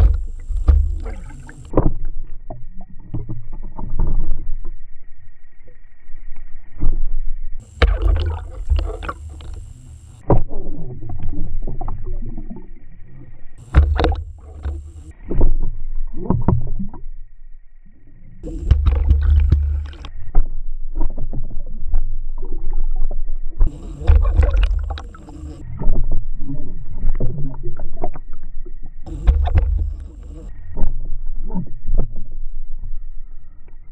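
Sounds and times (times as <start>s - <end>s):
faint high whine: 0.0s - 1.8s, 4.9s - 10.4s, 11.4s - 16.1s, 17.0s - 20.4s, 23.6s - 26.9s, 28.6s - 30.8s
water rushing over camera housing: 0.0s - 1.8s, 7.6s - 10.3s, 13.6s - 15.2s, 18.4s - 20.2s, 23.7s - 25.6s, 29.1s - 30.5s.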